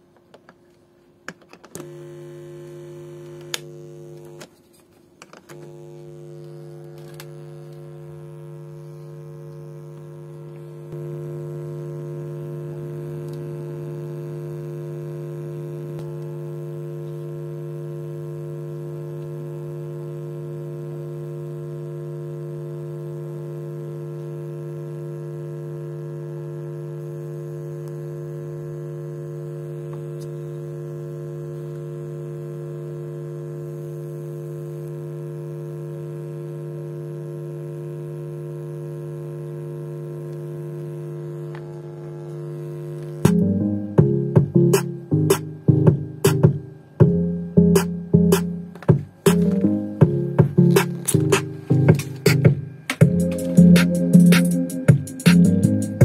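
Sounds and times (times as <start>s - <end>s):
pc speaker hum: 0.0s - 56.0s
clicks: 47.8s - 49.9s, 50.6s - 54.6s.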